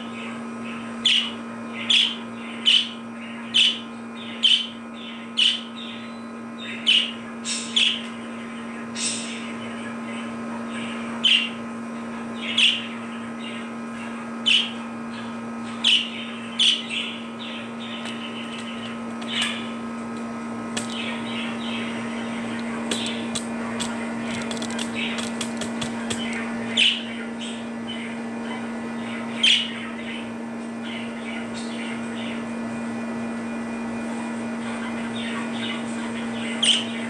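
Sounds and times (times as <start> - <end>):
budgerigar warbling chatter: 0.7 - 8.0, 20.8 - 28.2, 34.8 - 37.0
run of clicks: 18.0 - 21.0, 22.5 - 26.4
budgerigar contact calls: 20.7 - 27.6.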